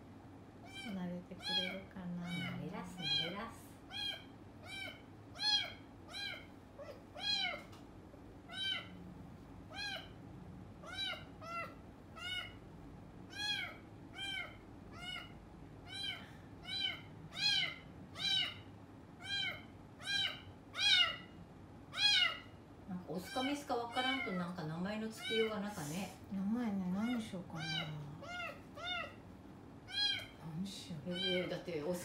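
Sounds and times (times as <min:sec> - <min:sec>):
kitten meowing: 0:00.7 - 0:07.7, 0:08.5 - 0:09.0, 0:09.7 - 0:10.2, 0:10.8 - 0:12.6, 0:13.3 - 0:18.6, 0:19.2 - 0:21.3, 0:21.9 - 0:22.5, 0:23.2 - 0:24.4, 0:27.0 - 0:29.2, 0:29.9 - 0:30.4, 0:31.1 - 0:31.5.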